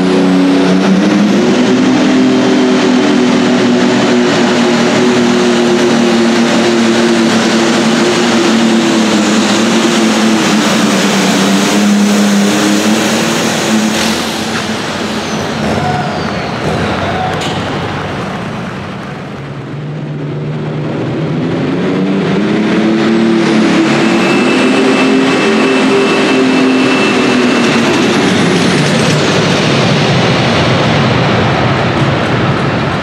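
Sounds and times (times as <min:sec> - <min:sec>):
tractor engine at full throttle: 0:00.0 - 0:33.0
high whistle sliding down: 0:23.8 - 0:27.9.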